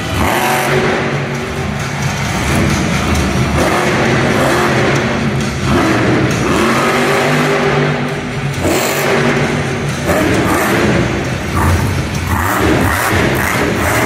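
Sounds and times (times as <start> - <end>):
truck engine revving: 0.0 - 14.0.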